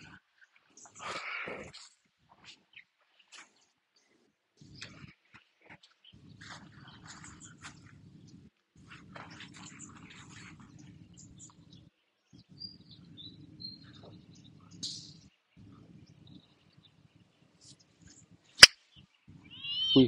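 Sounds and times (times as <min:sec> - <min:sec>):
birds chirping faintly: 0:09.0 - 0:20.0.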